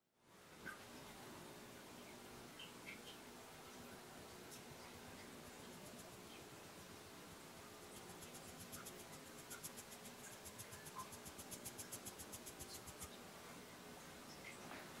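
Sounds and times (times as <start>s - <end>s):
sieve ticking while shaken: 7.9s - 13.2s.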